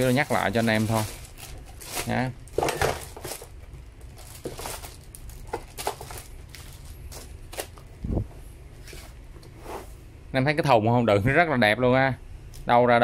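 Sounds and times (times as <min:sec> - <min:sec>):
plastic wrap crinkling: 0:00.0 - 0:08.0.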